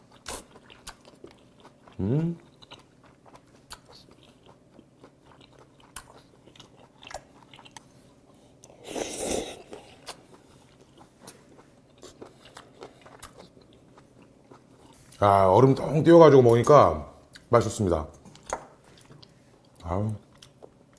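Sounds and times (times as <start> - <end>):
moist chewing with crunchy clicks: 0.1 - 8.8, 9.7 - 15.2.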